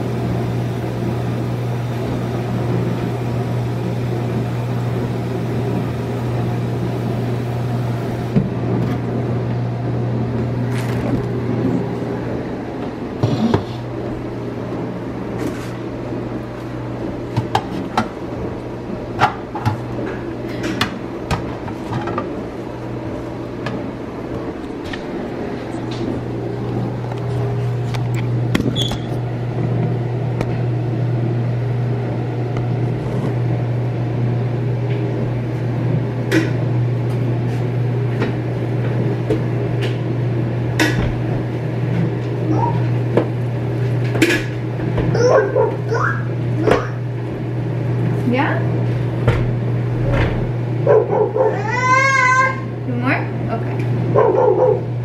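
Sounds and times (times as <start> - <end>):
low appliance hum: 0.0 - 55.0.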